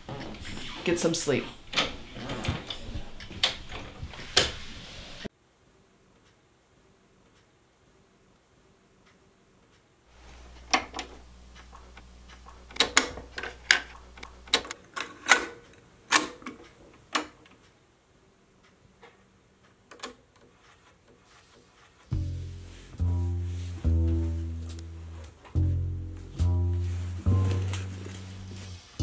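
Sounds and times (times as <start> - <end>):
cassette deck clicks: 10.6 - 15.5
low hum: 22.1 - 29.0.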